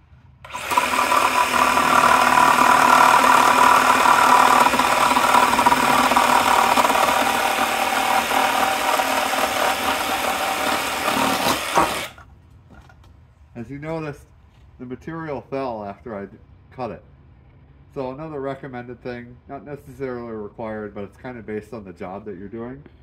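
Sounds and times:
reciprocating saw cutting wood: 0:00.4 - 0:12.2.

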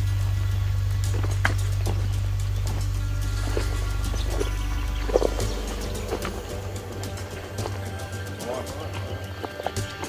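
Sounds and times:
background music with low drone: 0:00.0 - 0:10.0.

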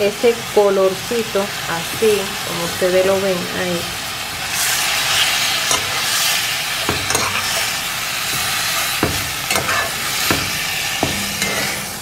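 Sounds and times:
chicken sizzling in a pot: 0:00.0 - 0:12.0
metal spoon scraping a pot: 0:04.5 - 0:12.0.

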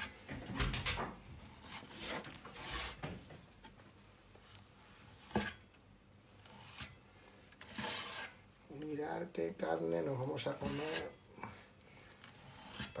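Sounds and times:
knife slicing meat: 0:07.6 - 0:08.4.

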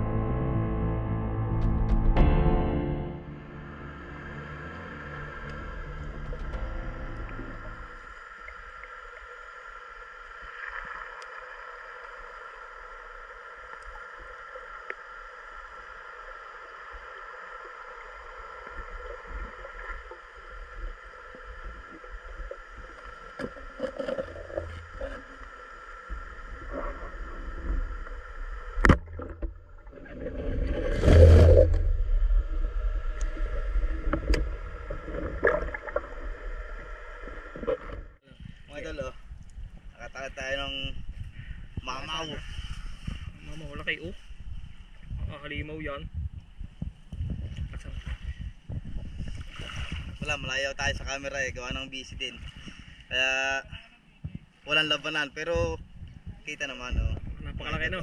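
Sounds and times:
steady droning tone: 0:00.0 - 0:39.8
water sloshing and gurgling: 0:03.4 - 0:38.6, 0:46.1 - 0:51.1
loud splash: 0:28.9 - 0:33.0.

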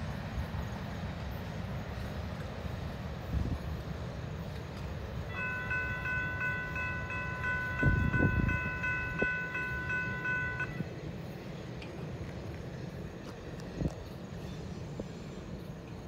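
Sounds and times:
rumble of passing train: 0:00.0 - 0:16.0
locomotive horn blast: 0:05.3 - 0:10.9.

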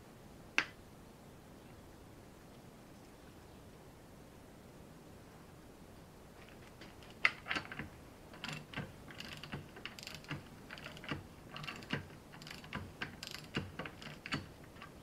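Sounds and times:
ratchet wrench clicking: 0:08.4 - 0:14.9.

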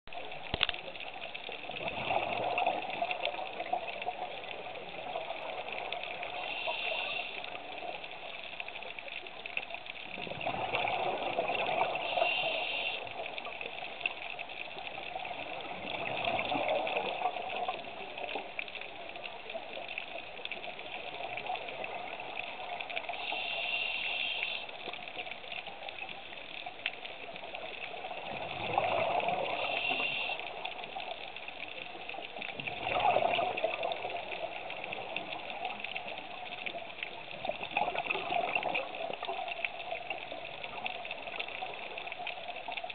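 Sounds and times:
steady underwater hiss: 0:00.1 - 0:42.9
hissing regulator inhalations: 0:06.3 - 0:07.6, 0:12.0 - 0:13.1, 0:23.1 - 0:24.8, 0:29.5 - 0:30.6.

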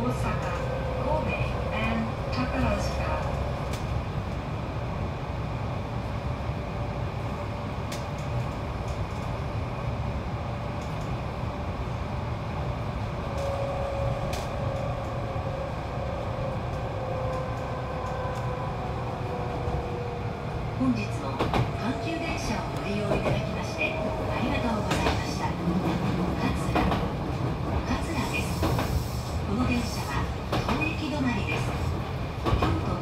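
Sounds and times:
train wheels rumbling on track: 0:00.0 - 0:33.0.

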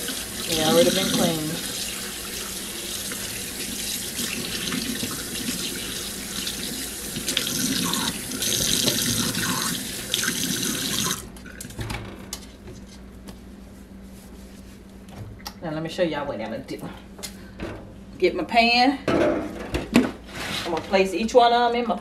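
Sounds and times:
tap water splashing into sink: 0:07.1 - 0:11.2
faint handling sounds: 0:12.4 - 0:15.2.

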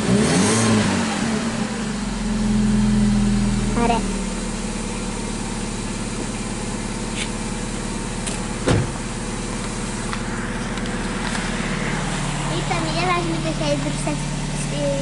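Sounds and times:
car engine idling: 0:00.9 - 0:15.0
brief thump: 0:08.3 - 0:09.0.

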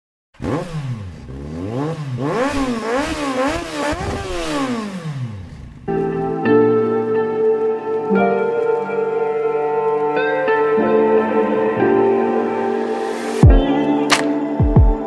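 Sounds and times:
motorcycle engine revving: 0:00.4 - 0:05.9
music with plucked-string notes: 0:05.9 - 0:15.0.

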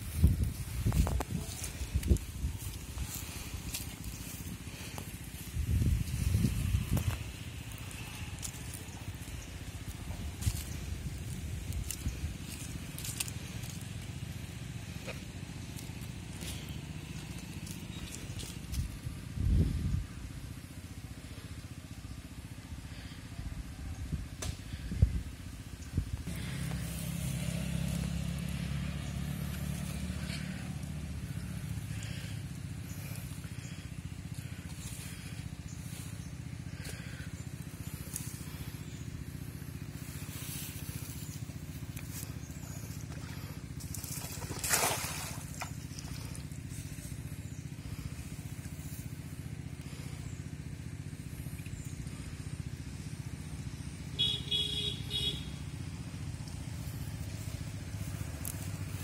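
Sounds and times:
low engine hum: 0:00.0 - 0:59.0
net splashing on water: 0:42.6 - 0:46.5.

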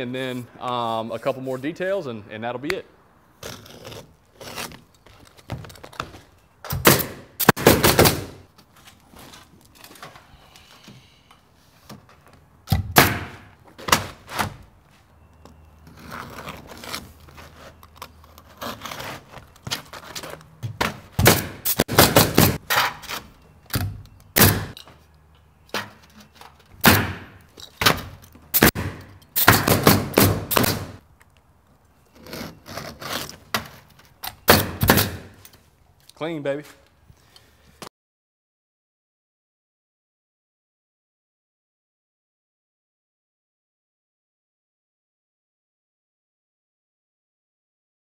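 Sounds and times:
shingles rustling: 0:03.4 - 0:06.8, 0:07.4 - 0:12.5, 0:13.3 - 0:37.4
pneumatic nailer firing: 0:06.7 - 0:08.4, 0:12.7 - 0:14.6, 0:21.2 - 0:24.8, 0:26.8 - 0:31.0, 0:34.4 - 0:35.4.

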